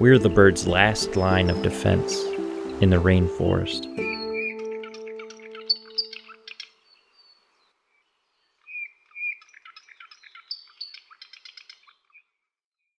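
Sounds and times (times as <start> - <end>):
bird chirps and trills: 0.8 - 12.4
bird whistled notes: 3.8 - 7.0.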